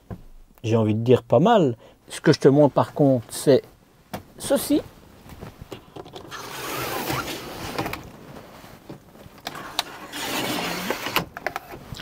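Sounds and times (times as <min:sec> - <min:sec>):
blind sliding and rustling: 0:06.2 - 0:11.9.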